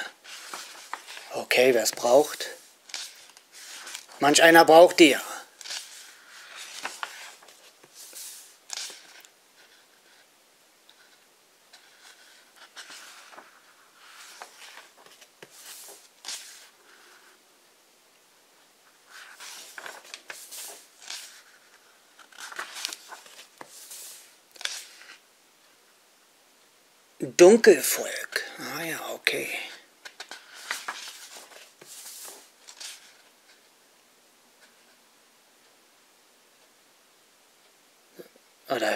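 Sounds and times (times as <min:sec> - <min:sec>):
book pages turning: 0:00.1 - 0:04.2, 0:05.5 - 0:10.3, 0:10.9 - 0:17.2, 0:19.1 - 0:25.2, 0:30.0 - 0:33.7
hands brushing over pages: 0:00.1 - 0:04.2, 0:05.5 - 0:10.3, 0:10.9 - 0:17.3, 0:19.1 - 0:25.2, 0:30.0 - 0:33.7.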